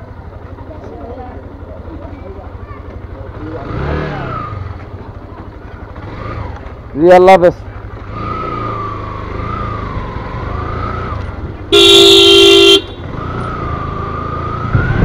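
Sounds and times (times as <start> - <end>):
motorcycle engine running: 0.0 - 15.0
horn honk: 11.7 - 13.2.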